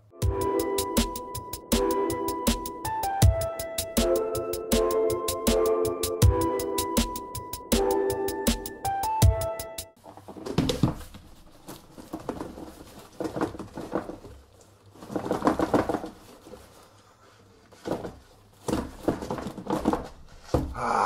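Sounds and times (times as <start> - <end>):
box and plastic film rustling: 10.0 - 20.7.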